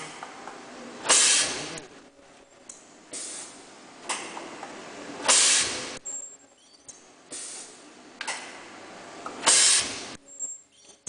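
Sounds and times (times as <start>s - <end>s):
compressed air hissing: 1.0s - 1.8s, 3.1s - 4.3s, 5.2s - 6.0s, 7.3s - 8.0s, 9.4s - 10.2s.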